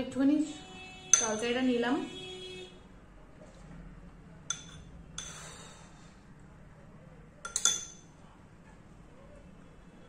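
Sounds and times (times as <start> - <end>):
metal spoon clinking on ceramic: 1.1 - 1.6, 4.5 - 5.3, 7.4 - 8.1.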